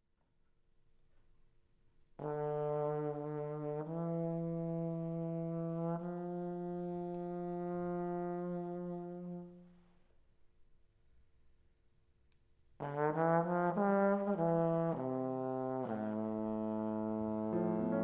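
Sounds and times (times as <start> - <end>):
trombone long notes: 12.8 - 18.0.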